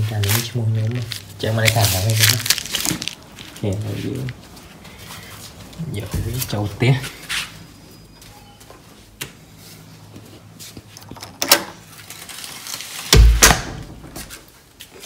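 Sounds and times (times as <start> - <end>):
loud low thud: 13.2 - 14.4.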